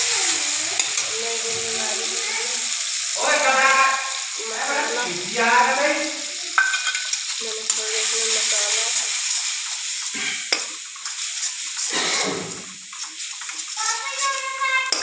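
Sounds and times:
spices sizzling in hot oil: 0.0 - 15.0
metal ladle scraping a pan: 9.2 - 15.0.

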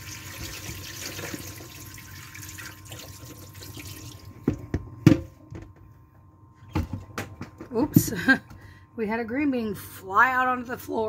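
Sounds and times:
water pouring into sink: 0.0 - 4.3.

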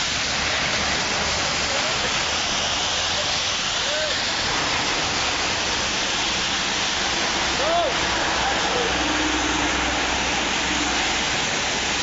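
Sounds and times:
car tyres on wet street: 0.0 - 12.0
rain hissing: 0.0 - 12.0.

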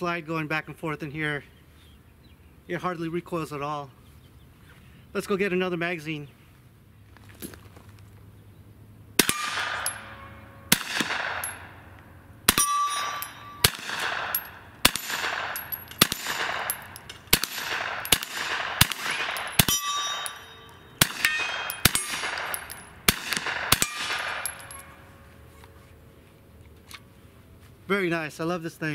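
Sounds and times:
gunshots with echo: 9.2 - 11.8, 12.5 - 25.0
metallic ring of steel targets: 9.2 - 25.6.

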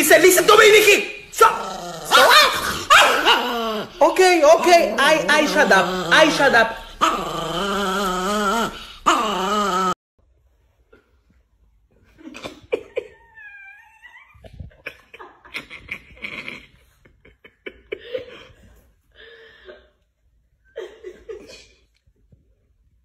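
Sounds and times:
small dogs barking: 2.0 - 3.8
dog whining: 5.0 - 10.0, 12.9 - 14.8.

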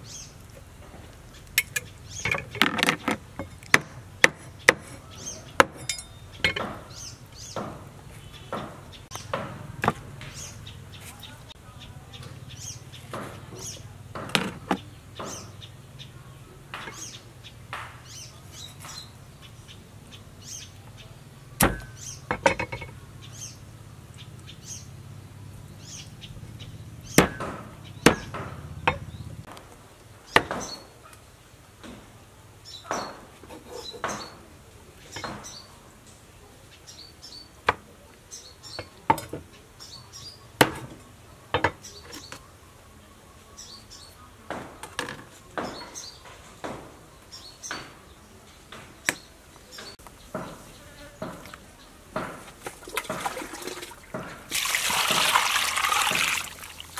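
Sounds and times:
cleaver chopping on wooden block: 2.6 - 4.9, 5.6 - 5.9, 21.6 - 22.9, 27.2 - 29.0, 30.4 - 30.8.

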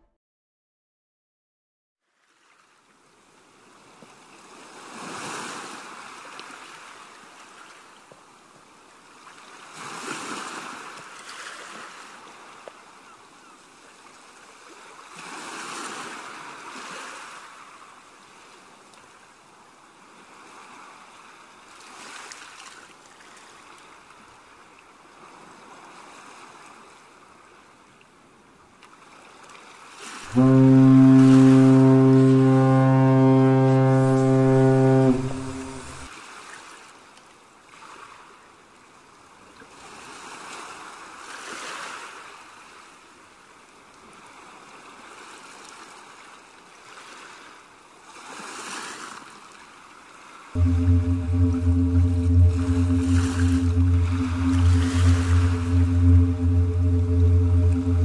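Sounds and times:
ocean waves washing: 30.3 - 36.1, 50.6 - 58.0.

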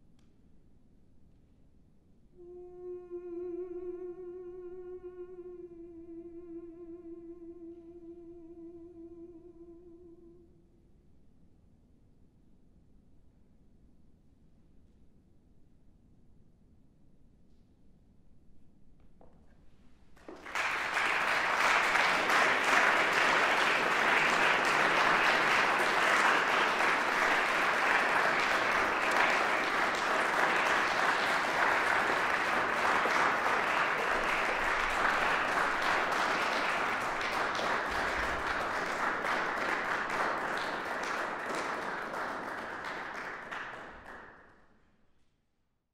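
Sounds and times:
audience applauding: 20.2 - 44.5.

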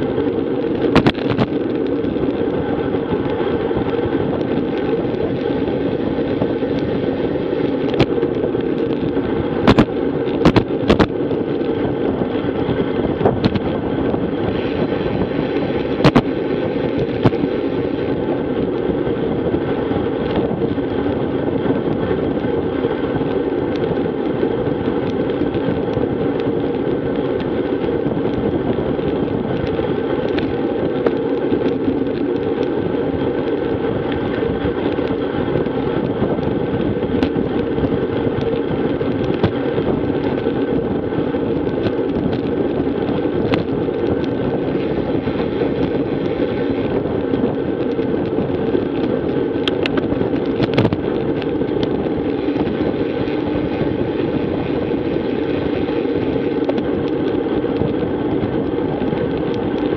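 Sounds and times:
bicycle tyre noise: 0.0 - 59.9
wind rushing: 0.0 - 59.9
faint ticks from road bumps: 23.1 - 59.9.

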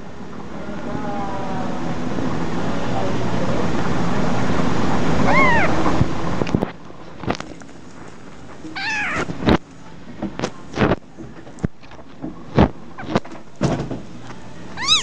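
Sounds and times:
loud steady noise: 0.0 - 6.7
kittens mewing: 5.2 - 6.1, 8.7 - 9.6, 14.8 - 15.0.

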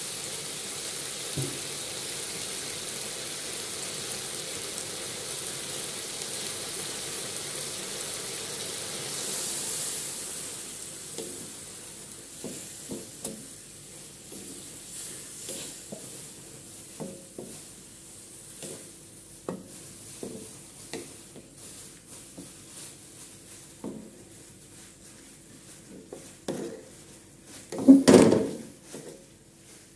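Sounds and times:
meat sizzling in a wok: 0.0 - 29.9
wooden spatula scraping a wok: 8.7 - 29.9.

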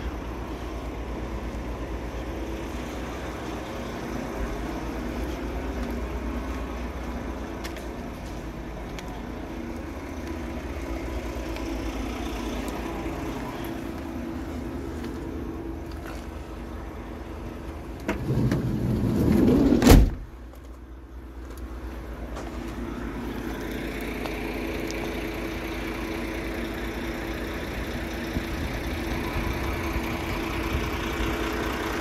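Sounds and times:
van engine idling: 0.0 - 32.0
sliding door rolling on track: 18.1 - 20.1
door slamming shut: 19.6 - 20.3.

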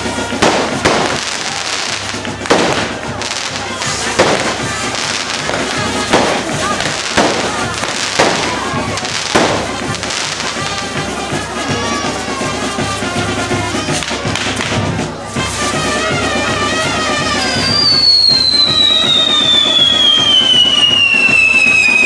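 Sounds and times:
firework fountains hissing: 0.0 - 22.0
music playing: 0.0 - 22.0
high falling whistle: 17.6 - 22.0.

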